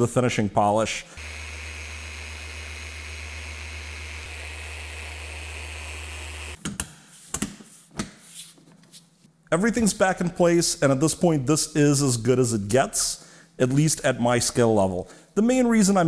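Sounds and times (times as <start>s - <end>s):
polisher running: 1.2s - 6.6s
knocks and handling sounds: 6.6s - 9.4s.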